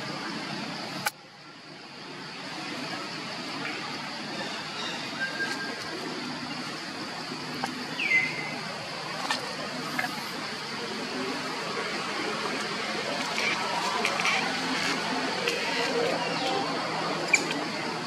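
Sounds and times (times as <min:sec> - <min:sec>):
outdoor background hiss: 0:00.0 - 0:18.0.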